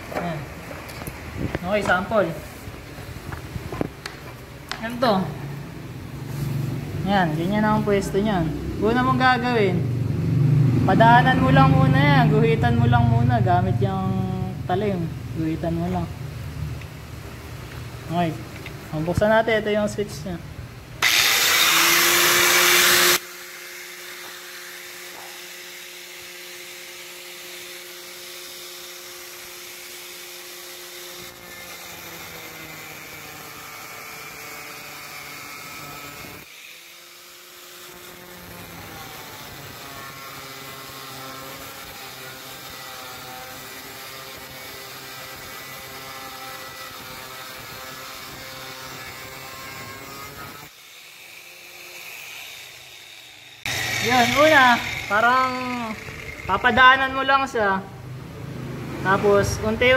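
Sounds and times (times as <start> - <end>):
angle grinder cutting steel: 21.0 - 57.7
angle grinder motor whining: 21.0 - 57.7.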